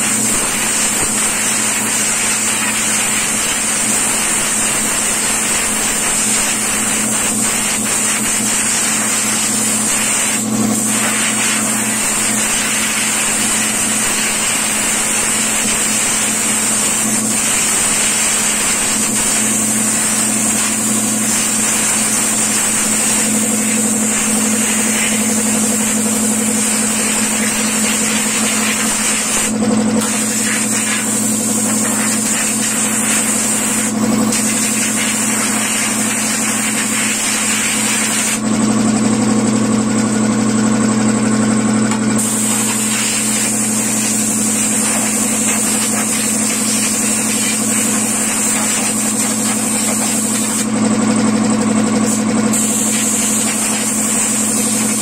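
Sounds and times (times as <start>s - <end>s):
compressed air hissing from hose: 0.0s - 38.4s, 42.2s - 50.7s, 52.0s - 55.0s
air compressor running: 0.0s - 55.0s.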